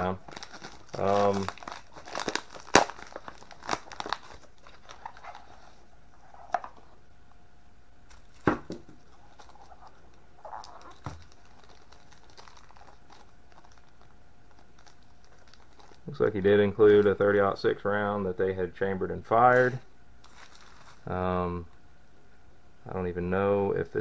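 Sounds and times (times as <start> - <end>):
paper wrapping crinkling: 0.0 - 6.8, 8.1 - 17.2, 19.4 - 21.1.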